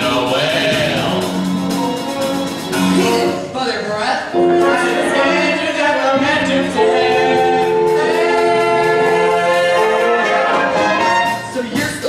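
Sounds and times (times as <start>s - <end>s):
group singing musical number: 0.0s - 3.6s, 4.3s - 12.0s.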